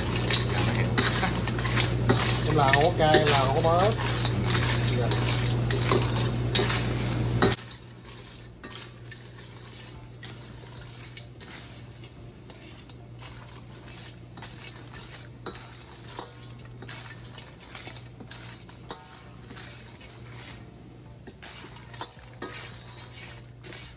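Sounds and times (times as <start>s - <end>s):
dishes and utensils clinking: 0.0s - 23.9s.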